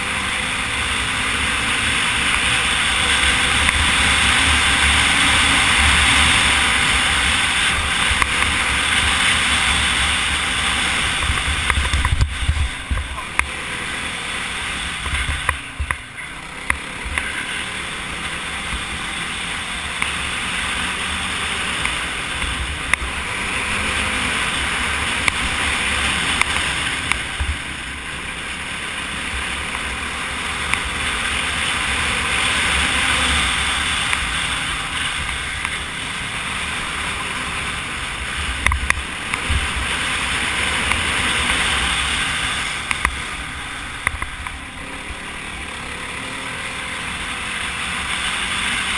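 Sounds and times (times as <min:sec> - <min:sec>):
quad engine and tyres: 0:00.0 - 0:48.9
gravel ticks: 0:00.6 - 0:48.9.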